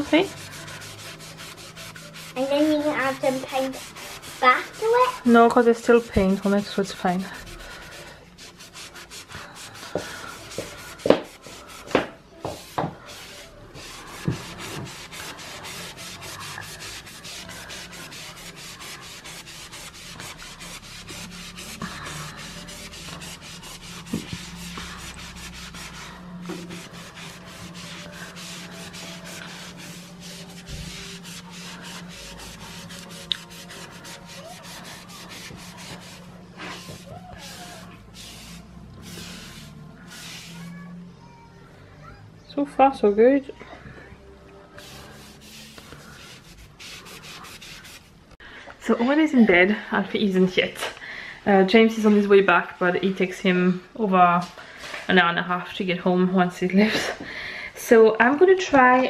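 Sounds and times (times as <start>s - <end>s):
foam eraser scrubbing a wall: 0.0s - 40.8s, 44.8s - 48.1s.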